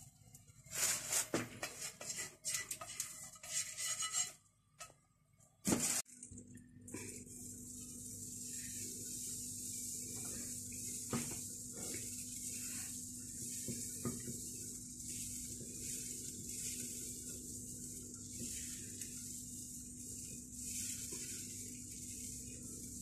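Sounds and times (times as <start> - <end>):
low steady hum: 4.2 - 23.0
batter sizzling in frying pan: 7.0 - 23.0.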